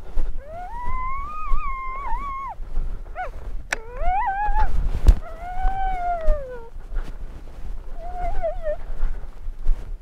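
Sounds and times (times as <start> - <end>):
dog howling: 0.4 - 6.7, 8.0 - 8.8.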